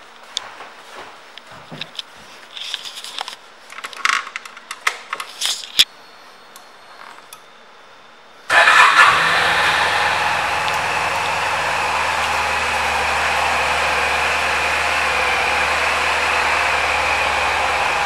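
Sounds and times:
scooter engine starting and idling: 8.5s - 18.0s.

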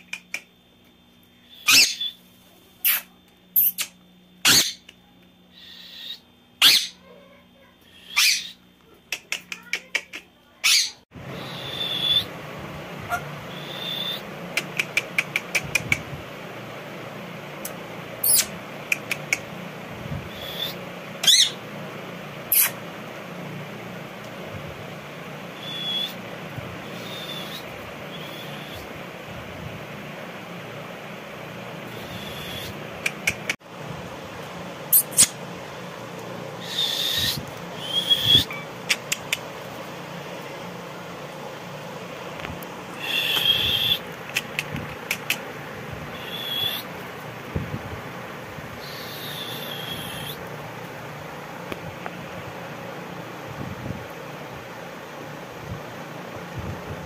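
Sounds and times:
parakeet sharp clicks: 0.0s - 0.5s, 14.5s - 16.1s, 17.6s - 19.5s, 33.0s - 33.6s, 38.8s - 39.5s, 43.2s - 45.4s
steady background hum: 0.0s - 57.0s
parakeet high whistles: 1.4s - 2.2s, 3.6s - 4.8s, 5.6s - 7.0s, 7.9s - 8.6s, 10.6s - 12.3s, 13.1s - 14.3s, 20.3s - 21.6s, 25.6s - 26.2s, 26.8s - 28.9s, 31.9s - 32.8s, 36.6s - 38.6s, 43.0s - 44.0s, 46.1s - 46.9s, 48.8s - 50.4s
parakeet squawk: 1.5s - 2.2s, 3.6s - 4.9s, 5.6s - 7.0s, 7.9s - 8.6s, 10.6s - 12.3s, 20.3s - 21.6s, 36.6s - 38.7s, 43.0s - 44.0s.

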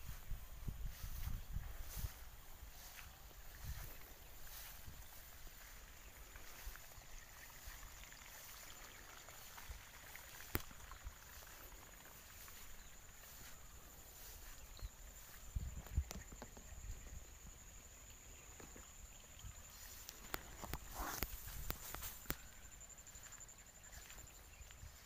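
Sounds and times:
footsteps on path: 0.0s - 15.5s, 20.1s - 25.0s
palm fronds brushing: 20.0s - 22.5s.

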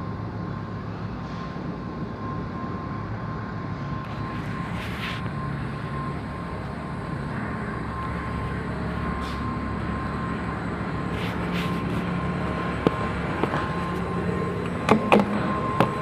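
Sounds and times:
gas torch roaring: 3.9s - 16.0s.

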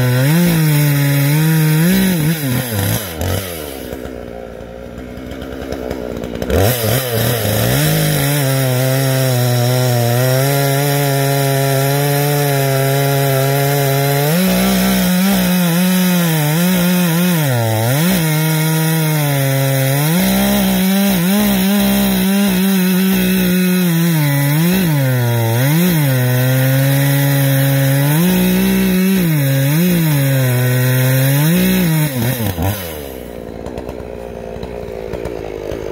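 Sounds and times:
chainsaw cutting log: 0.0s - 35.9s.

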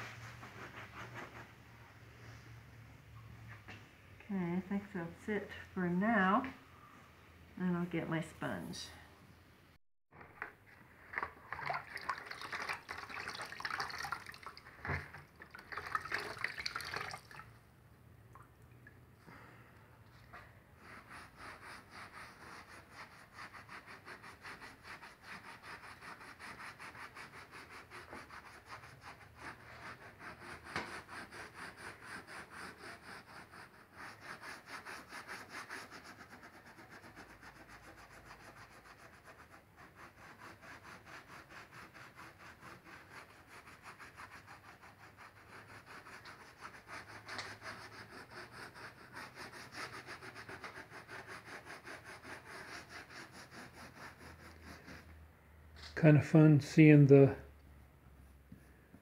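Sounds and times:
sponge scrubbing grout on glass: 20.8s - 55.1s.

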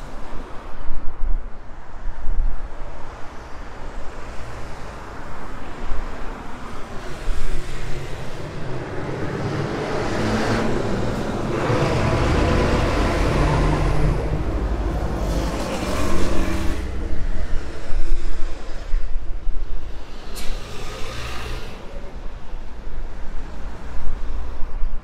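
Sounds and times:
city traffic: 0.0s - 25.0s
vehicle passing close by: 7.1s - 19.0s.

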